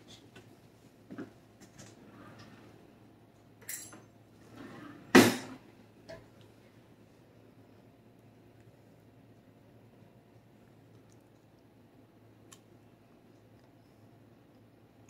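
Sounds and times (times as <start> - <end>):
dishes and cutlery clinking: 3.6 - 4.1.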